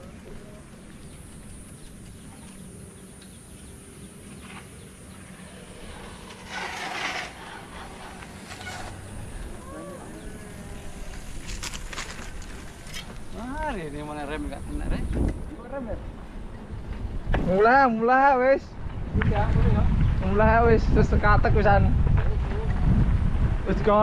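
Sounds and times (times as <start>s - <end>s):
bike tyre rumble on road: 0.0s - 17.4s, 18.8s - 24.0s
wind: 0.0s - 24.0s
rising and falling calls: 0.8s - 11.4s.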